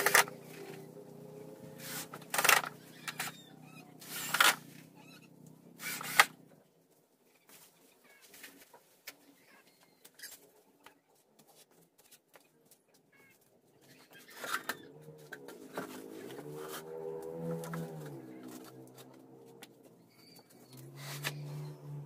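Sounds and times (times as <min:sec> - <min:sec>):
power tool bursts: 0:04.0 - 0:04.6, 0:05.8 - 0:06.3.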